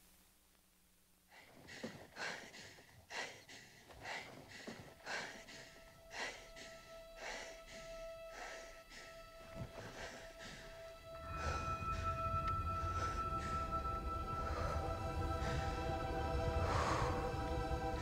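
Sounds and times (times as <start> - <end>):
person breathing hard: 1.3 - 18.0
faint held musical tone: 4.7 - 18.0.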